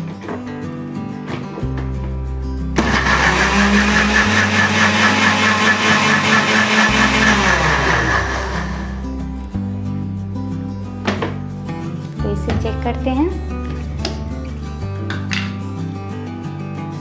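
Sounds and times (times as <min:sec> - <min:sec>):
electric mixer grinder motor: 0:02.8 - 0:09.1.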